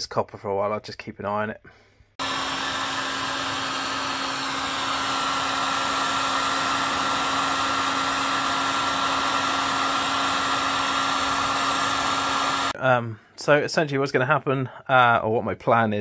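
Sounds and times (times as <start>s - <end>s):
heat gun blowing air: 2.2s - 12.8s.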